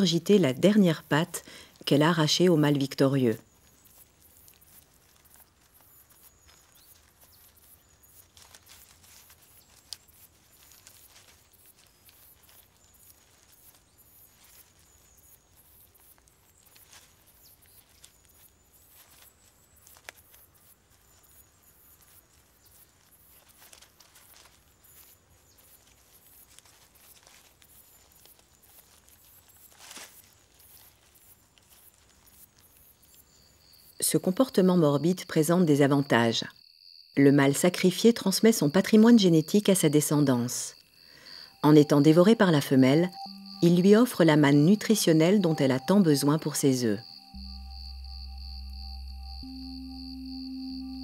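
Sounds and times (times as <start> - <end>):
soft crackles and clicks: 0.0 - 34.5.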